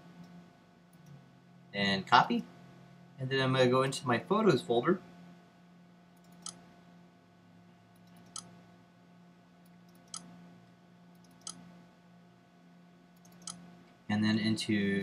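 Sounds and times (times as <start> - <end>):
faint steady hum: 0.0 - 15.0
computer mouse clicking: 6.2 - 6.6, 8.0 - 8.5, 9.6 - 10.3, 11.1 - 11.6, 13.2 - 13.6.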